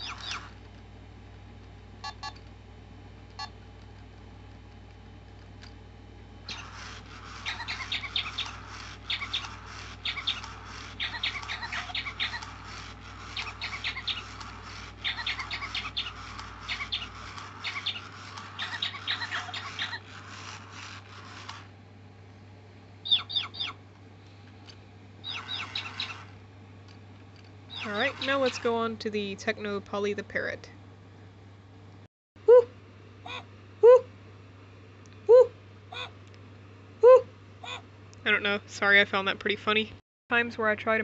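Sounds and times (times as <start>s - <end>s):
electronic bird tweeting tones: 7.5s - 12.5s, 13.3s - 14.4s, 15.0s - 20.0s, 25.2s - 26.3s.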